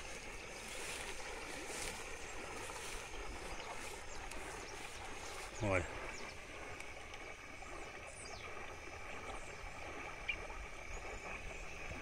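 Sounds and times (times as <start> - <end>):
flooded river rushing: 0.0 - 9.5.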